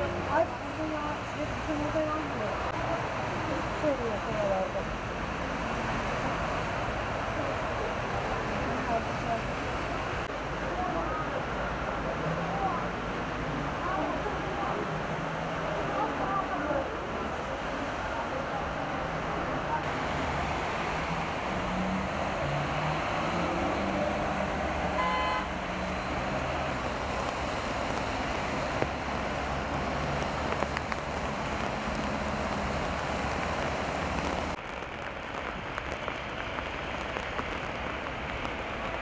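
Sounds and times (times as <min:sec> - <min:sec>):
heavy rain: 0:00.0 - 0:39.0
traffic on wet roads: 0:00.0 - 0:39.0
car horn toot: 0:25.0 - 0:25.6.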